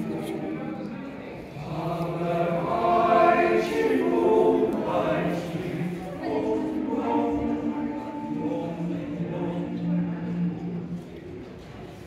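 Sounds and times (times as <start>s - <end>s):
male choir singing a cappella: 1.5s - 11.0s.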